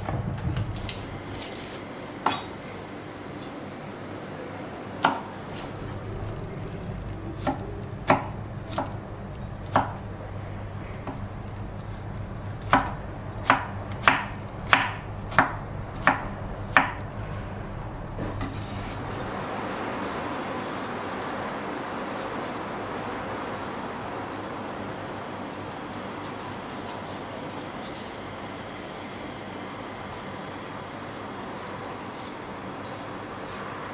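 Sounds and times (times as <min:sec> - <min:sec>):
knife scraping potato skin: 0:01.3 - 0:02.5, 0:25.3 - 0:28.2, 0:29.7 - 0:33.9.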